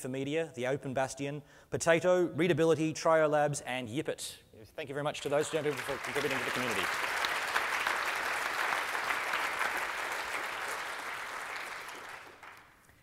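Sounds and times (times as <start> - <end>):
audience applauding: 5.2 - 12.9.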